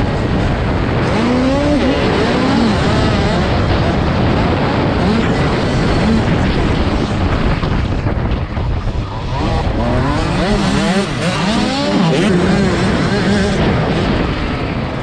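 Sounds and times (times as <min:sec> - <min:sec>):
dirt bike engine revving: 0:00.0 - 0:08.0, 0:08.8 - 0:15.0
wind rushing over microphone: 0:00.0 - 0:15.0.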